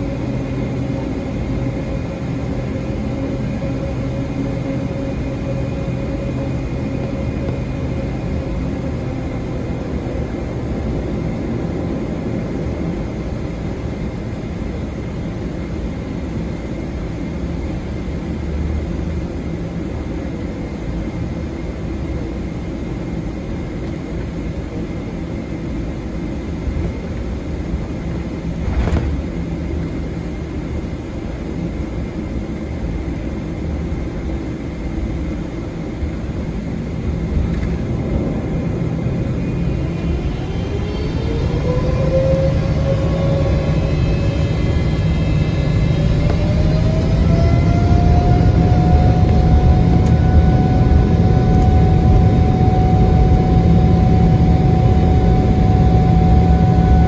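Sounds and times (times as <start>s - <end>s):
faint steady whine: 0.0s - 57.0s
jet engine rumble in cabin: 0.0s - 57.0s.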